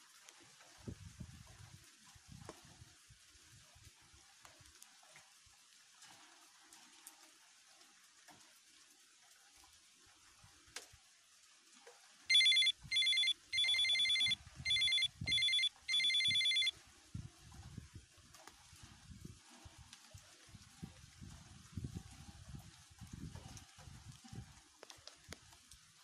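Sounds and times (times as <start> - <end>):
phone ringtone: 12.3 - 16.7.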